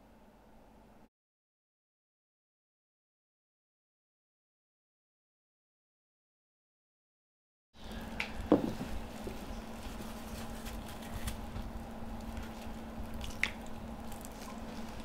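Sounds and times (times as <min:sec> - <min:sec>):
steady low hum: 0:07.8 - 0:15.0
wet squishes of raw meat: 0:11.4 - 0:15.0.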